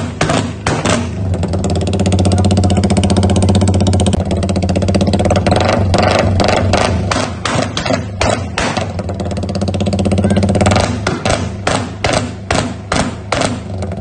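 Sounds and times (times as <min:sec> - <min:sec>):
exhaust pops and crackles: 0:00.0 - 0:14.0
motorcycle engine revving: 0:00.0 - 0:14.0.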